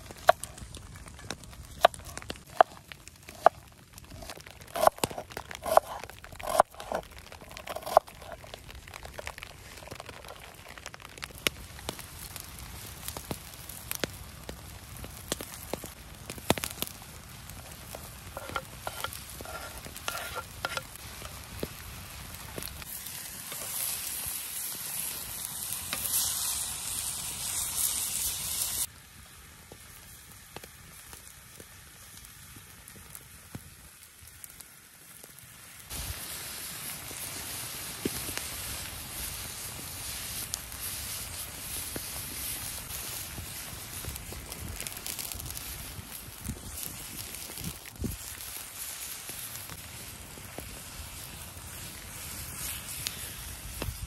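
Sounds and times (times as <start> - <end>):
onion and meat frying in skillet: 0.0 - 54.0
knife chopping on wooden board: 4.2 - 7.0, 7.7 - 8.1
wooden spatula stirring: 18.4 - 20.9.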